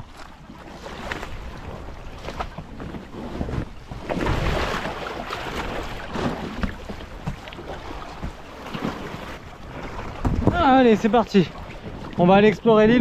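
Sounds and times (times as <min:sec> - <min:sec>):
water sloshing and splashing: 0:00.0 - 0:13.0
wind on microphone: 0:00.0 - 0:13.0
paddle knocks: 0:02.2 - 0:09.2, 0:09.8 - 0:13.0.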